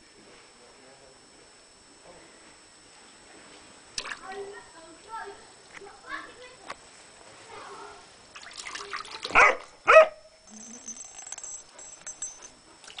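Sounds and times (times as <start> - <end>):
dog barking: 9.3 - 10.2.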